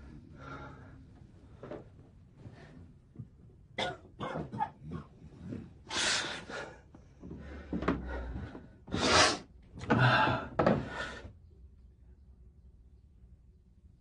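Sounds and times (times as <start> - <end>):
man breathing heavily and groaning: 9.9 - 11.3.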